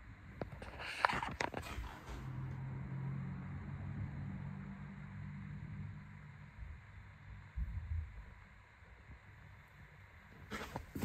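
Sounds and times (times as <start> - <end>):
rustling scrape: 0.6 - 2.4, 10.5 - 11.0.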